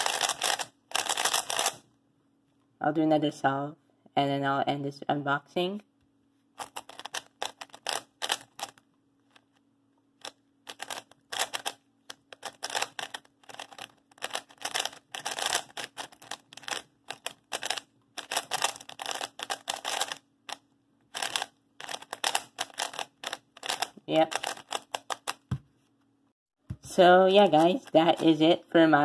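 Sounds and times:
plastic puzzle cube clicking: 0.0 - 1.8, 6.6 - 8.8, 10.2 - 25.5.

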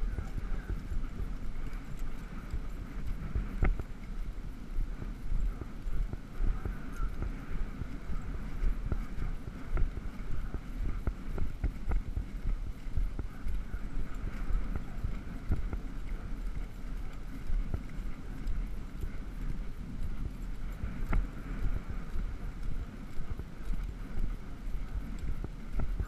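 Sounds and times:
horse hooves on grass: 0.0 - 26.0
wind on microphone: 0.0 - 26.0.

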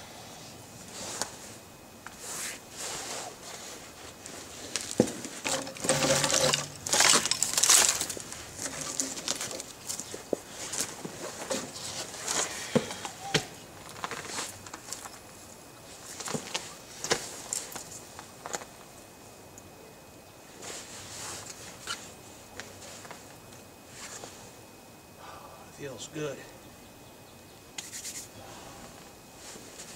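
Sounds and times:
twigs rustling and crackling: 3.6 - 18.9
twigs snapping: 4.7 - 10.9.

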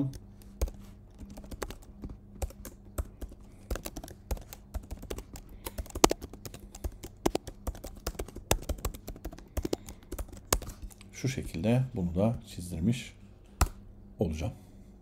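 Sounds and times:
keyboard typing clicks: 0.0 - 11.0
faint low hum: 0.0 - 15.0.

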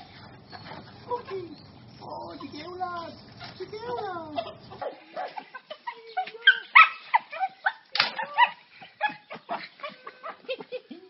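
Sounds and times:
dog yipping and whining: 6.4 - 9.3.

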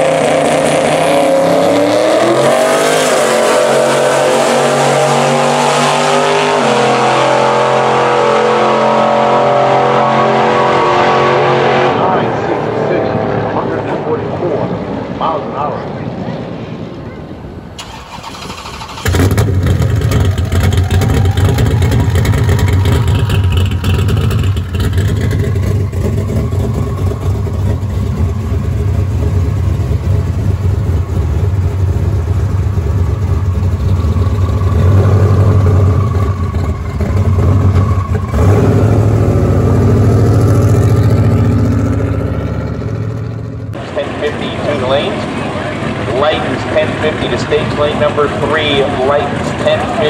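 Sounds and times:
truck engine idling: 17.7 - 50.0.

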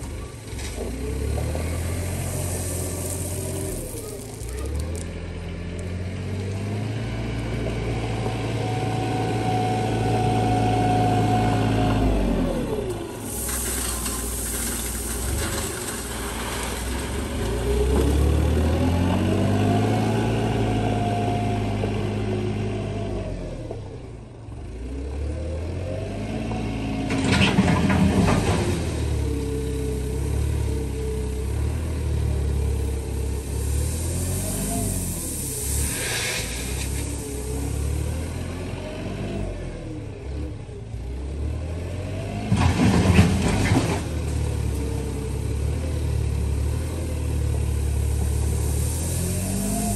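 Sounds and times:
gravel rattling and crashing: 0.0 - 5.2, 13.1 - 18.3, 33.0 - 37.9, 42.5 - 44.8
wheel loader engine revving: 0.0 - 23.8, 24.7 - 49.9.

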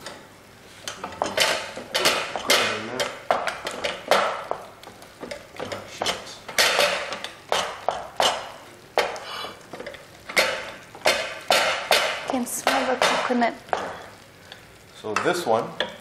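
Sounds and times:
utensil scraping a metal pot: 9.0 - 14.2.

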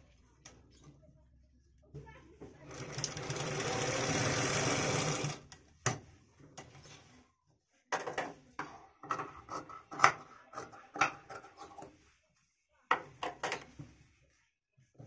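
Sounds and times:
sewing machine stitching: 2.6 - 5.5.

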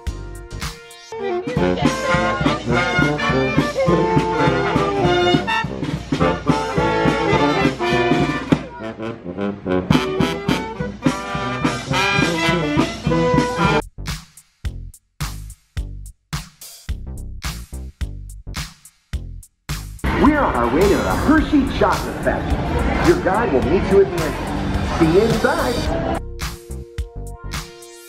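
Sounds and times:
brass band playing jazz: 0.1 - 13.9, 20.0 - 26.8
trombone: 1.6 - 13.8.

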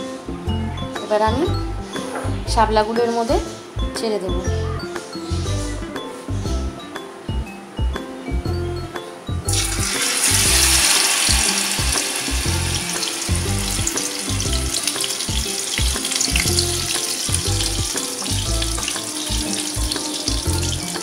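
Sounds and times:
battered food sizzling in hot oil: 9.5 - 21.0.

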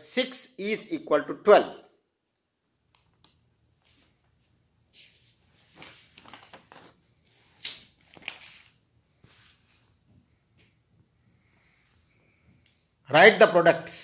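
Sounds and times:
paper rustling: 3.8 - 9.8.

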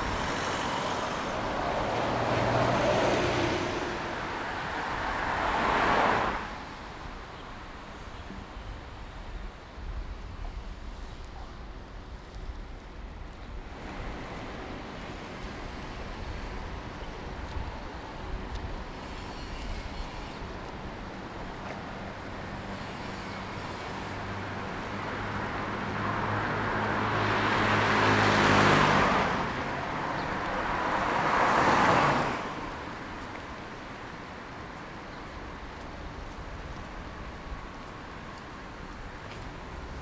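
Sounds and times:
car passing on wet road: 0.0 - 6.8, 24.8 - 33.4
distant traffic: 0.0 - 9.3.

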